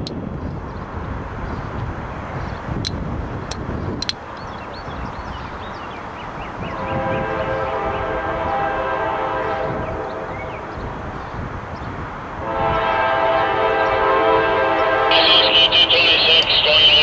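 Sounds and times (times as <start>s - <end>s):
train air horn blasts: 6.7s - 10.6s, 12.4s - 17.0s.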